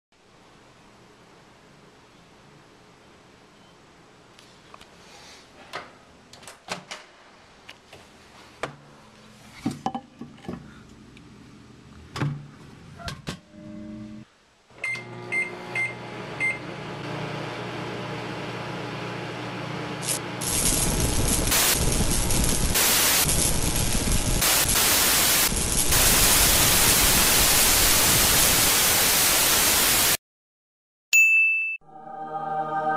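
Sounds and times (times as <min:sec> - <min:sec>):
microwave oven humming: 0:14.8 - 0:24.4.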